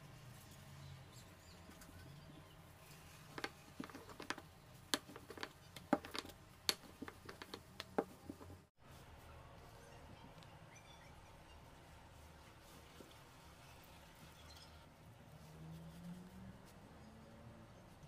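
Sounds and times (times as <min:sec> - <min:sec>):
rolling pin knocking on board: 0:03.4 - 0:08.6.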